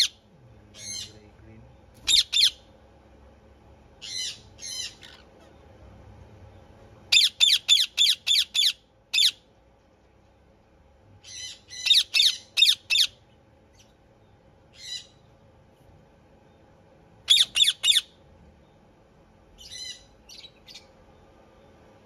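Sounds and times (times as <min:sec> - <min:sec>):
parakeets squawking: 0:00.0 - 0:01.3, 0:02.0 - 0:02.7, 0:04.0 - 0:05.5, 0:07.1 - 0:09.5, 0:11.2 - 0:13.2, 0:14.7 - 0:15.2, 0:17.3 - 0:18.2, 0:19.6 - 0:20.9.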